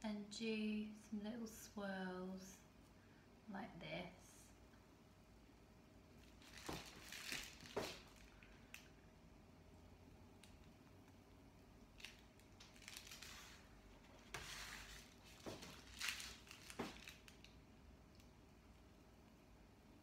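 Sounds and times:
plastic piping bag crinkling: 0:06.2 - 0:09.0, 0:10.4 - 0:18.3.

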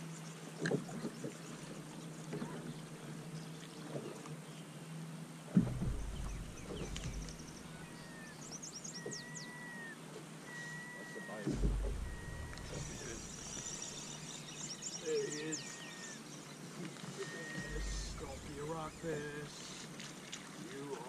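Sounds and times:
knocks on boat deck: 0:05.5 - 0:07.8, 0:11.4 - 0:13.3
trolling motor hum: 0:05.5 - 0:20.3
birds chirping and whistling: 0:05.8 - 0:19.8.

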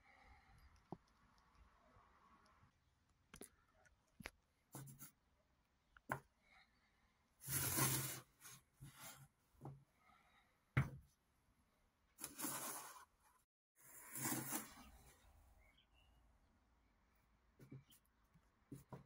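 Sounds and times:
cardboard cores scraping: 0:07.4 - 0:08.6.

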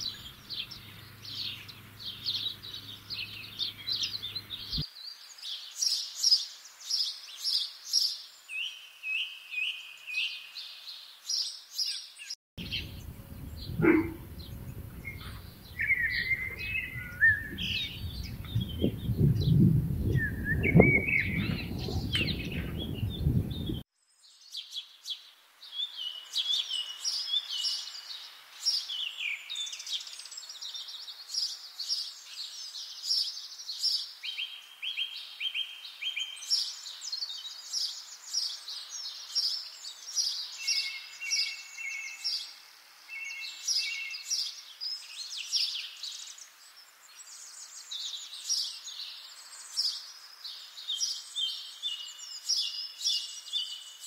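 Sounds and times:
songbirds singing and chirping: 0:00.0 - 0:54.0
low rumble: 0:12.6 - 0:23.8.

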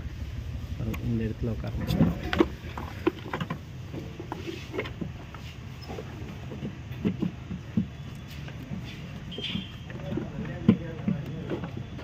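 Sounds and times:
plastic clicks and knocks: 0:06.4 - 0:12.0.

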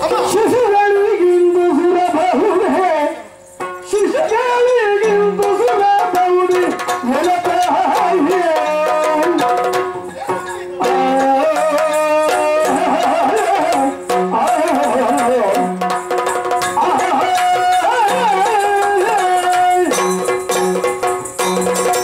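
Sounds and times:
drum strokes: 0:03.3 - 0:22.0
person singing long melodic lines: 0:03.9 - 0:09.7, 0:10.8 - 0:15.7, 0:16.7 - 0:21.1.

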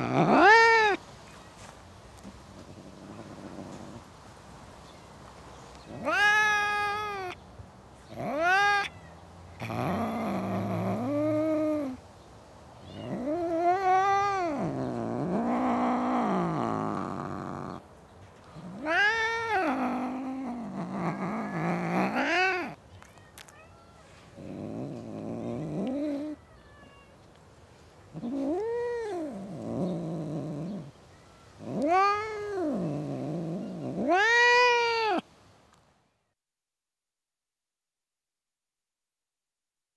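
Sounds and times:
cats yowling: 0:00.0 - 0:01.0, 0:05.8 - 0:07.4, 0:08.1 - 0:09.0, 0:09.6 - 0:12.0, 0:12.8 - 0:17.8, 0:18.6 - 0:22.8, 0:23.4 - 0:27.1, 0:28.1 - 0:30.9, 0:31.6 - 0:35.2.

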